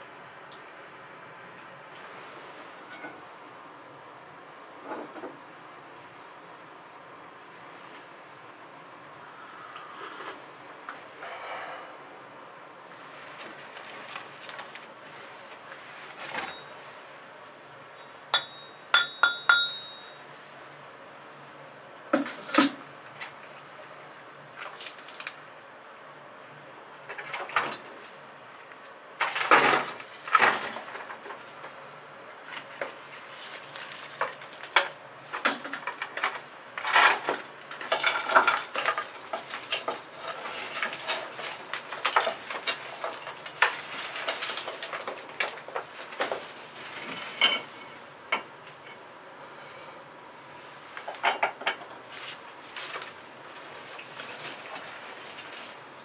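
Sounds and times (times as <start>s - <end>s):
bricks and rubble clinking: 18.0s - 20.2s, 35.8s - 46.4s.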